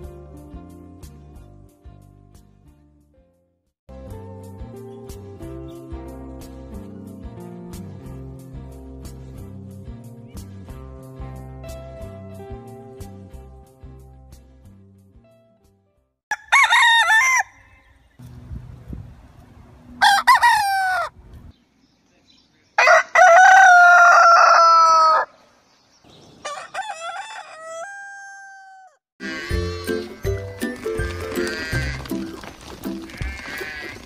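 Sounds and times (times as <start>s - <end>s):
rooster crowing: 16.3s - 17.8s, 20.0s - 21.2s, 22.8s - 25.4s, 26.4s - 29.4s.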